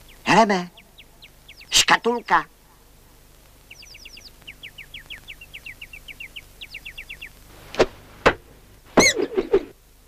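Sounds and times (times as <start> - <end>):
faint high chirps: 0.0 - 2.5, 3.6 - 7.4.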